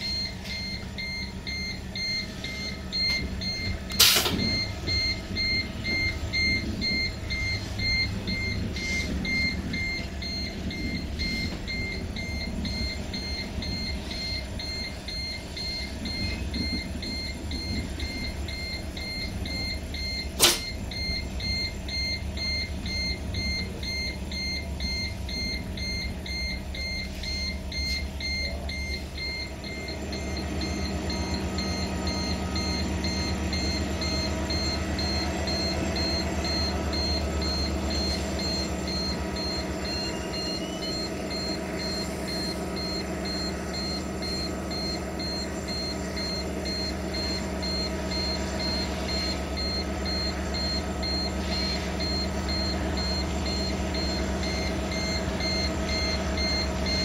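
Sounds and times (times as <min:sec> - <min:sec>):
train rumble: 0:00.0 - 0:26.9.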